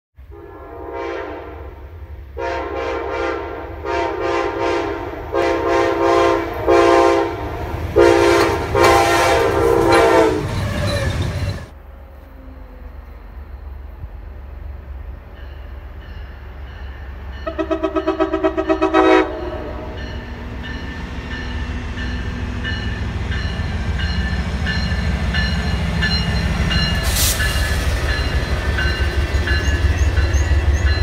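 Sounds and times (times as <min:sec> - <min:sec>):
locomotive horn blasts: 0:00.2 - 0:11.5, 0:17.4 - 0:20.2
train rumble: 0:00.2 - 0:31.0.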